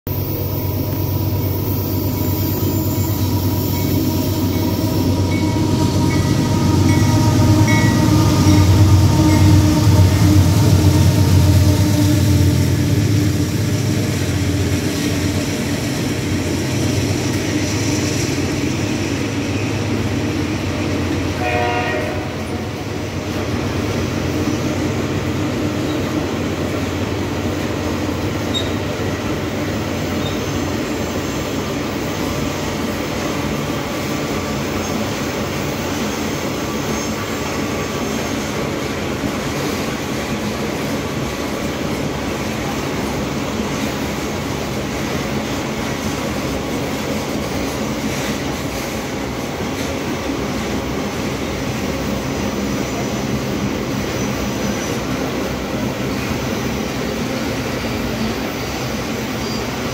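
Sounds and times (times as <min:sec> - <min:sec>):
high ringing tone: 0:00.1 - 0:11.3
locomotive deep rumble: 0:00.1 - 0:21.4.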